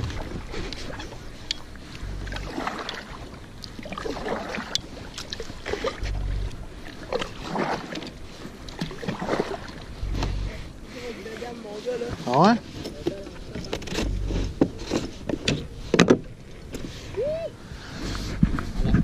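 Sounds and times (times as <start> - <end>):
short low rumbles: 0.0 - 4.5, 5.5 - 8.6, 9.2 - 11.0, 13.8 - 16.5
paddle splashing in water: 0.0 - 17.3.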